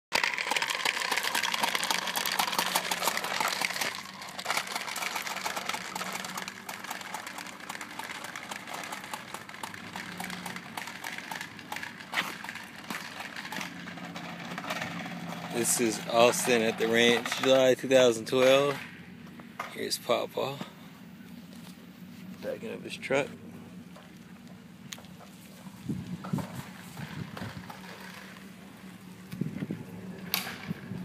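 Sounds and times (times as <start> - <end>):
toy balls popping and clattering: 0.1 - 17.7.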